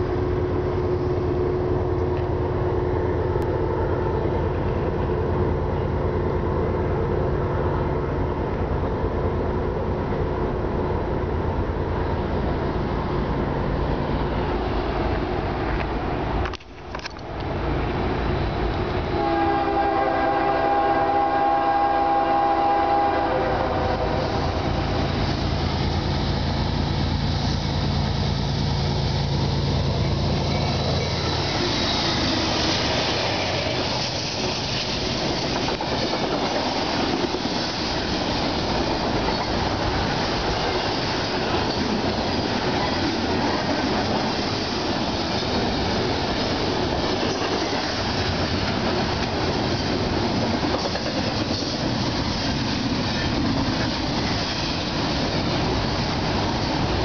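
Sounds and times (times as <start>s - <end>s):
freight train rumble: 0.0s - 57.0s
locomotive horn: 19.1s - 24.7s.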